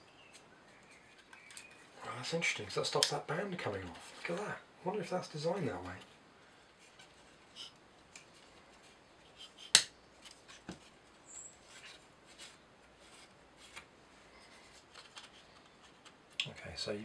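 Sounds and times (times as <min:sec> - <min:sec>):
plywood parts clicking and rubbing: 0:00.2 - 0:02.0, 0:05.7 - 0:16.5
sharp wooden click: 0:09.4 - 0:10.0.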